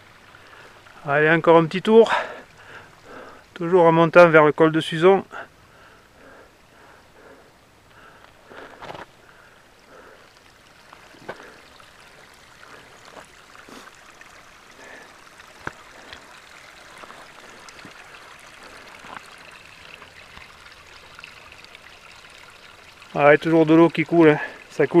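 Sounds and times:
mountain stream water trickling: 0.0 - 25.0.

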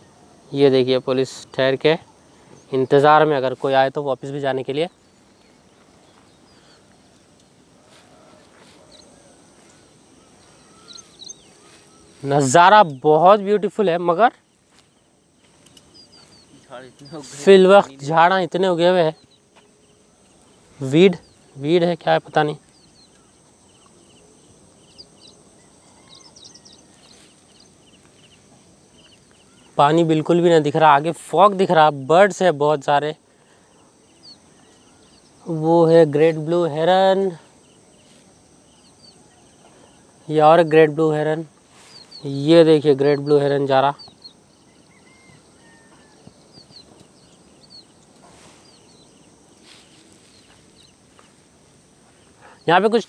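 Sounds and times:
low steady outdoor hiss: 0.0 - 53.0
small birds chirping: 0.0 - 53.0
bird chirps and whistled calls: 10.2 - 13.2, 43.0 - 51.0.

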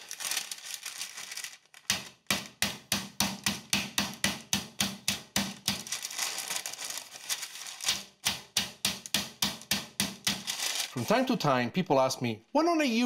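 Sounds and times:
meat mallet pounding meat: 1.9 - 5.9, 8.2 - 10.4.

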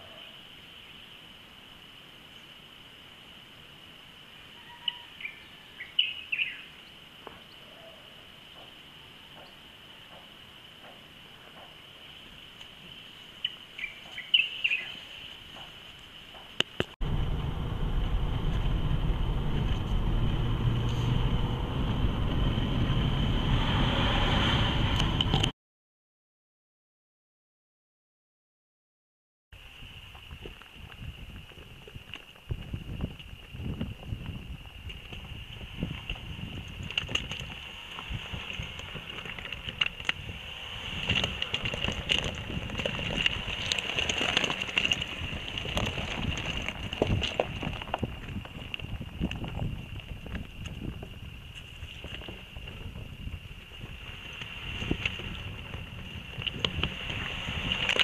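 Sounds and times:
wind hiss: 8.2 - 25.4, 29.6 - 58.0
engine and tyre rumble: 15.6 - 25.5, 29.8 - 58.0
steady high whine: 17.0 - 25.5.

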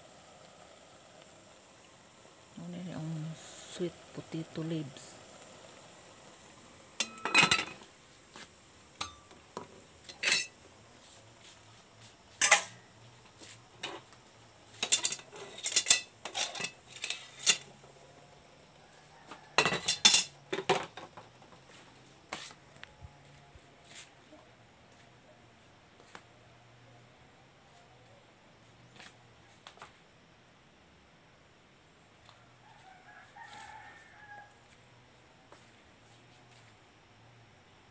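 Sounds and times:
dishes and cutlery clinking: 7.0 - 7.8, 10.0 - 10.6, 12.4 - 12.8, 14.8 - 17.7, 19.6 - 20.9.

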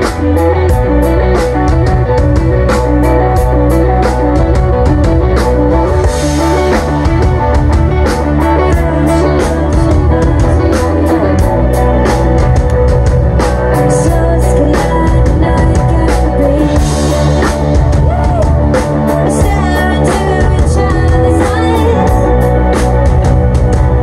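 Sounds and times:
drum kit beat: 0.0 - 24.0
electric guitars: 0.0 - 24.0
keyboard: 0.0 - 24.0
person singing: 8.3 - 12.5, 13.7 - 22.8.

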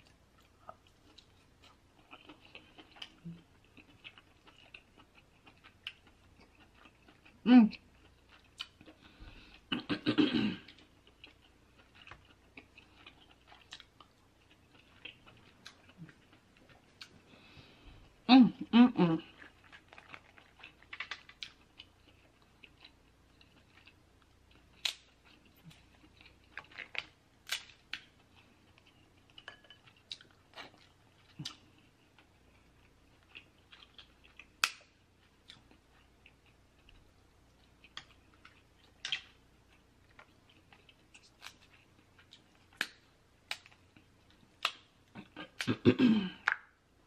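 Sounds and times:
quiet chewing: 0.0 - 9.9, 10.6 - 18.3, 19.2 - 46.7
crab shells cracking: 34.5 - 34.9.

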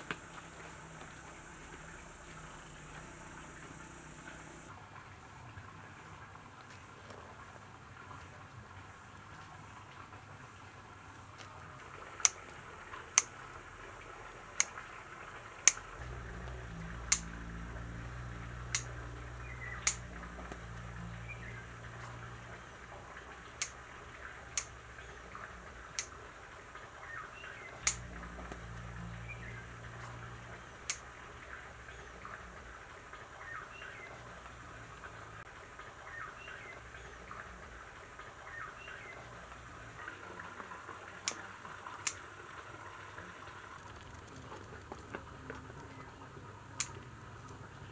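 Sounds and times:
faint high chirps: 0.0 - 4.7
low hum: 0.0 - 4.7, 15.7 - 25.8, 27.1 - 37.7
sharp clicks: 0.0 - 4.7, 15.6 - 15.9, 17.0 - 17.4, 18.7 - 20.7, 27.7 - 28.6, 30.8 - 31.1.

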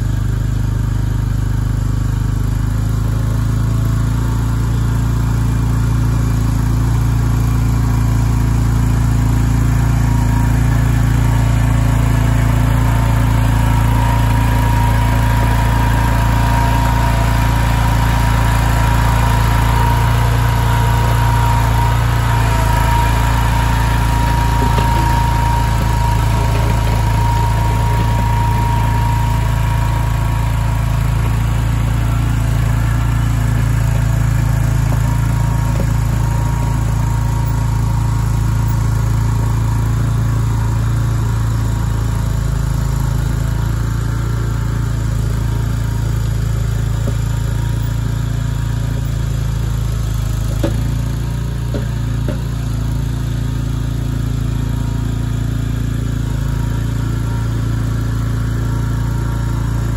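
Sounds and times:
mini skid steer engine drone: 0.0 - 59.9
tracks driving over gravel: 9.2 - 40.6
high mechanical whine: 9.8 - 40.0.

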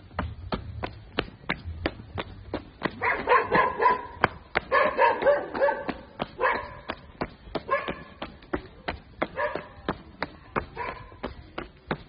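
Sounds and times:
footsteps: 0.0 - 12.0
dog yipping: 3.0 - 6.8, 7.7 - 8.0.

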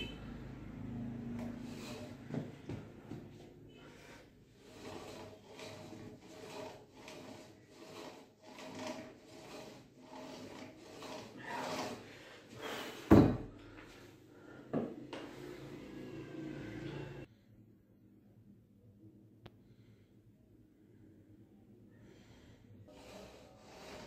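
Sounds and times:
cable whirring over pulleys: 0.8 - 2.8, 3.8 - 12.7, 15.2 - 17.3, 22.9 - 24.0.

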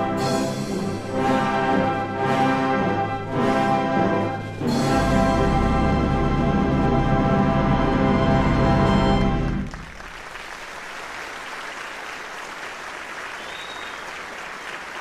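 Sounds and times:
brass band and organ chord: 0.0 - 9.7
audience applauding: 8.9 - 15.0.

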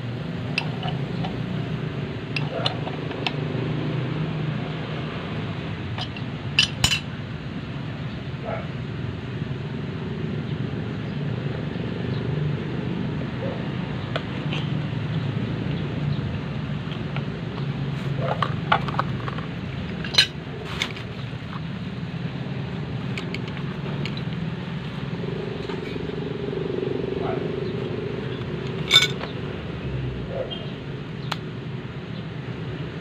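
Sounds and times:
metal pipe fittings clinking: 6.0 - 7.1, 20.0 - 20.4, 28.8 - 29.3.

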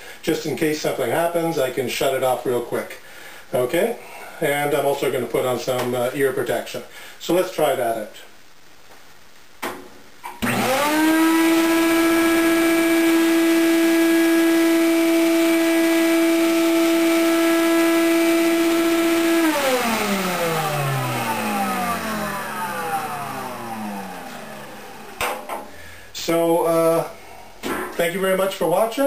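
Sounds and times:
shop vac motor whining: 10.3 - 25.5.

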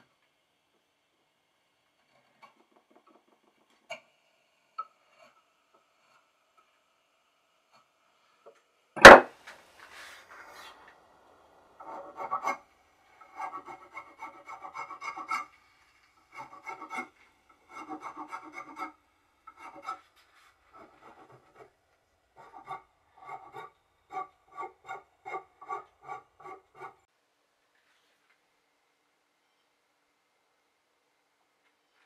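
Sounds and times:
file rasping on wood: 11.8 - 27.1.

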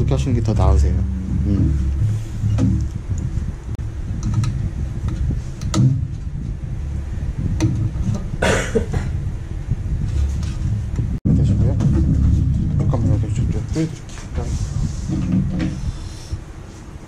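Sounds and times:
steady low rumble: 0.0 - 17.0
rustling scrape: 1.7 - 2.6, 10.0 - 10.9, 12.0 - 17.0.

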